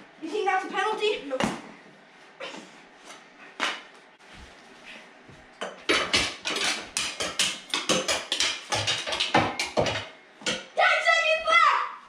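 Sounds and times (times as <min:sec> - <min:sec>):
hockey sticks clacking: 0:05.6 - 0:10.7.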